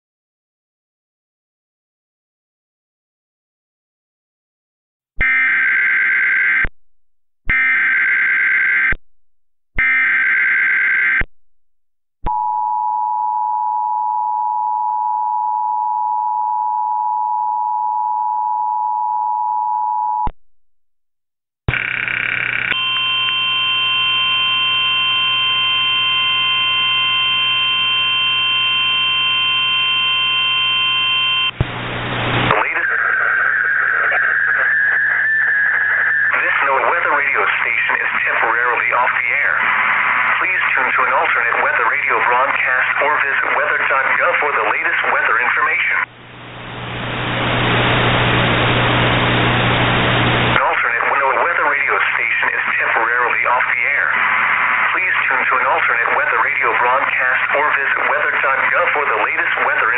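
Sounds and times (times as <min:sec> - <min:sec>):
loud static: 0:21.7 - 0:23.8, 0:29.1 - 0:59.9
hiss and hum with held tones: 0:31.6 - 0:37.1, 0:46.1 - 0:50.6.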